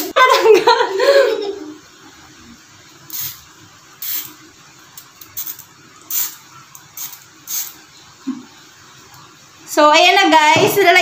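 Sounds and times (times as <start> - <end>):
aerosol can spraying: 3.1 - 4.4, 5.0 - 7.8.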